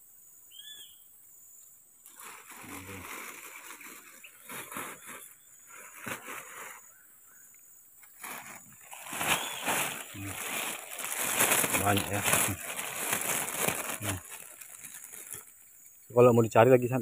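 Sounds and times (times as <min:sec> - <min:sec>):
plastic bag rustling: 0:02.0 - 0:06.9, 0:08.0 - 0:15.7.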